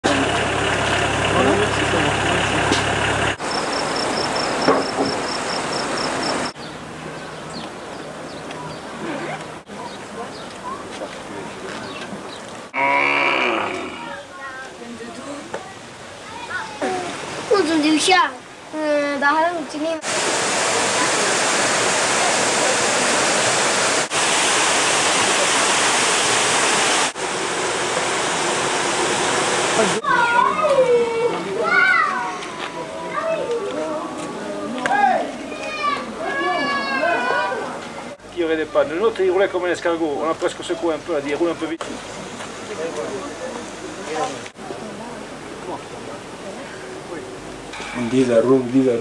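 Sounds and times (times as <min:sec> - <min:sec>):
engine hum: 0:00.0 - 0:14.1
insect chirping: 0:03.4 - 0:06.6
loud steady rushing noise: 0:19.7 - 0:30.1
steady hiss: 0:19.8 - 0:30.1.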